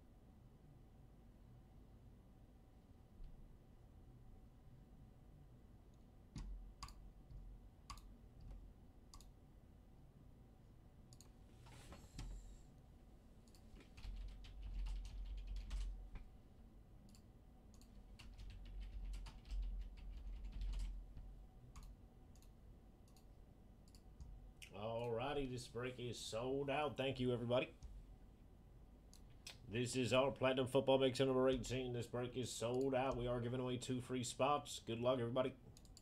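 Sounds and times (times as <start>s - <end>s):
computer keyboard typing: 13.5s - 16.0s, 17.8s - 21.0s.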